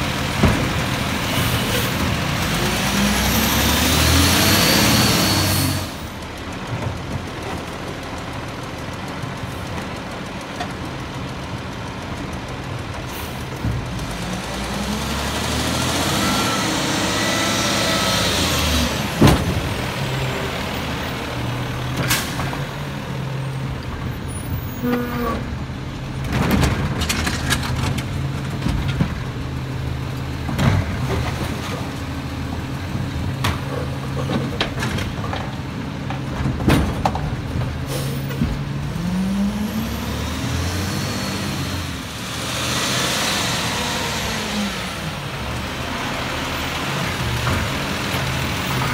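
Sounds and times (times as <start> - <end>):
diesel truck engine: 0.0 - 48.9
metal clanks and bangs: 32.9 - 38.8
air brakes hissing: 37.8 - 38.4.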